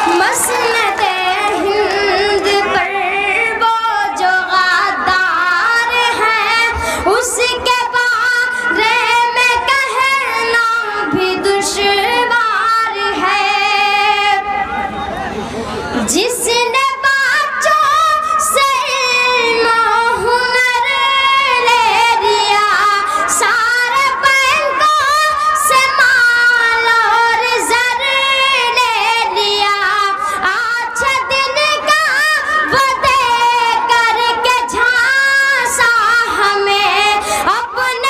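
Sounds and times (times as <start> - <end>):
boy singing into microphone: 0.0 - 14.7, 16.0 - 38.0
singer breaths: 6.7 - 7.1, 23.0 - 23.3, 30.2 - 30.4, 37.2 - 37.5.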